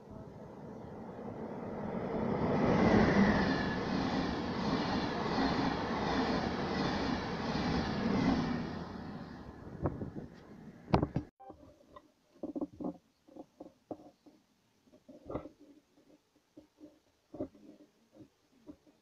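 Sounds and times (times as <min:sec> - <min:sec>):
train passing at speed: 0:00.0 - 0:10.2
train wheels on rails: 0:01.3 - 0:10.0.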